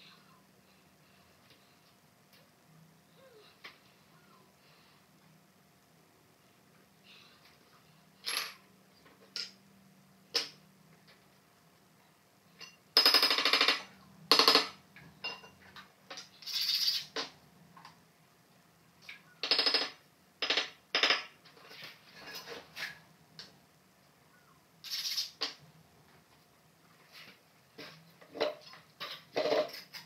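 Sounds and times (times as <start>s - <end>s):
ceramic tiles scraping and rattling: 15.6s - 17.4s, 19.5s - 23.0s, 27.2s - 30.0s.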